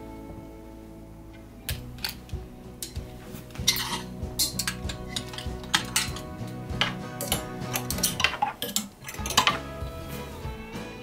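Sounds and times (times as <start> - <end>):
background music: 0.0 - 11.0
clothes hangers clacking: 1.7 - 9.7.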